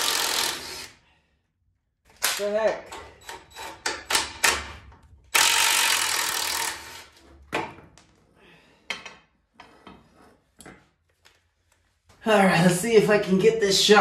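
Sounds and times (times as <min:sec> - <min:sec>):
metal bar scraping concrete floor: 0:06.8 - 0:07.5, 0:09.0 - 0:10.7.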